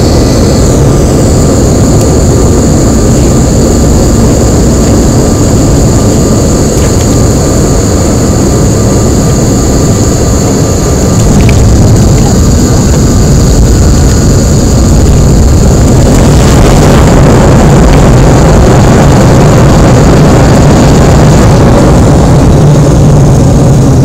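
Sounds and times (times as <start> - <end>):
high whine: 0.0 - 24.0
jet engines in aircraft cabin: 0.0 - 24.0
low steady hum: 0.0 - 24.0
rumble of landing roll: 11.1 - 24.0.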